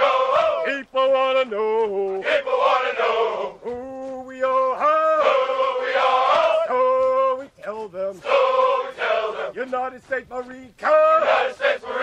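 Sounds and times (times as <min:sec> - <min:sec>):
men chanting: 0:00.0 - 0:12.0.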